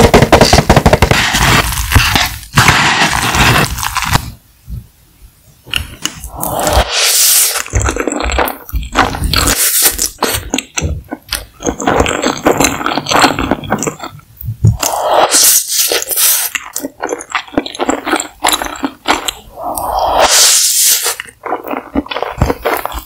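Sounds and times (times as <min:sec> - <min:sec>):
mouth clicks and smacks: 0:05.6 - 0:23.0
slurping noodles: 0:06.0 - 0:14.1, 0:14.7 - 0:23.0.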